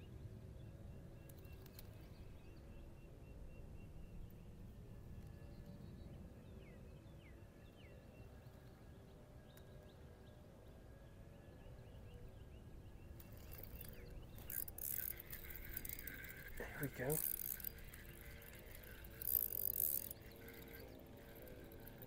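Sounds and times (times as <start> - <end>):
faint bird chirps: 0.0 - 22.0
fishing reel whirring: 13.2 - 22.0.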